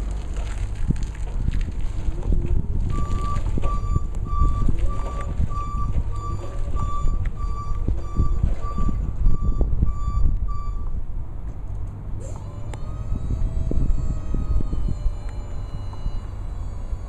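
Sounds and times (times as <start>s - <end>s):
wind buffeting microphone: 0.0s - 11.4s, 12.0s - 17.0s
forklift reversing alarm beeping: 2.9s - 11.0s, 12.3s - 17.0s.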